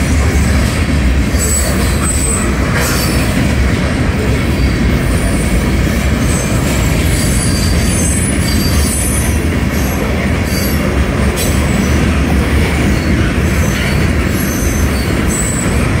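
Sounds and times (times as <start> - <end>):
train wheels rumbling on rails: 0.0 - 16.0
high-pitched wheel squeals: 6.2 - 9.4.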